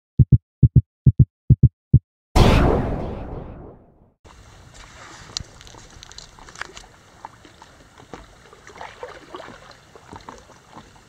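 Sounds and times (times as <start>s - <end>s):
steady hiss: 4.3s - 7.3s
water lapping against paddleboard: 4.4s - 11.0s.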